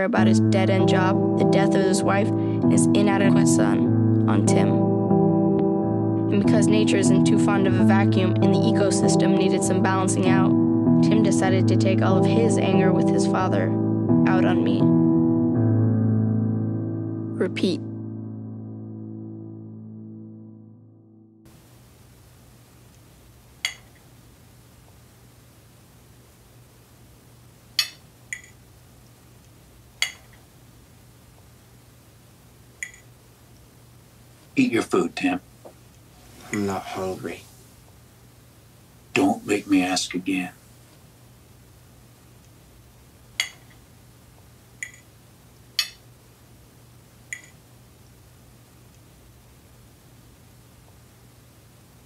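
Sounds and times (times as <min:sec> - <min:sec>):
faint low hum: 0:17.2 - 0:52.0.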